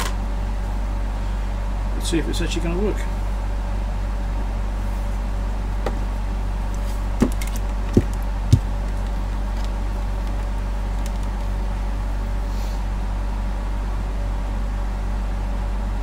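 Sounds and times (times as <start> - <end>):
steady low hum: 0.0 - 16.0
test leads knocking on metal bench: 7.2 - 9.1.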